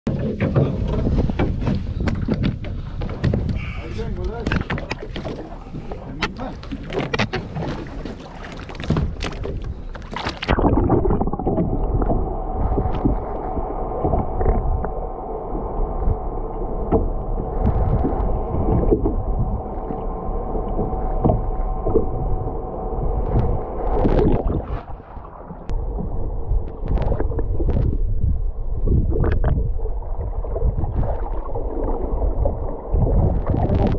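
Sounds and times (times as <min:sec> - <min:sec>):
underwater rumble of sea: 0:00.1 - 0:33.9
water splashing: 0:00.2 - 0:33.9
steady hum: 0:09.0 - 0:33.9.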